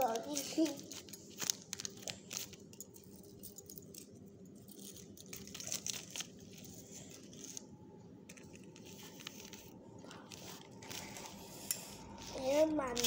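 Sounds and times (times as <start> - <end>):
necklace beads clinking: 0.0 - 7.6
rustling of wrapping: 0.0 - 13.0.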